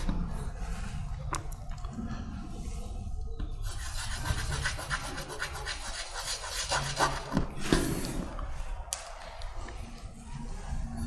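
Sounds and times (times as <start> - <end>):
chalk rubbing on a blackboard: 3.6 - 7.5.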